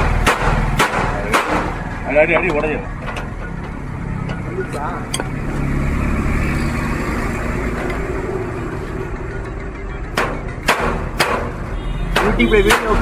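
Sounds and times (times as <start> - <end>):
hammer striking steel rod: 0.0 - 1.8, 10.1 - 13.0.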